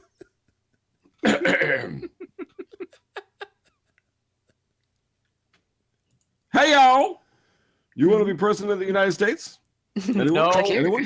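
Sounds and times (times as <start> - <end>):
person laughing: 0.0 - 4.6.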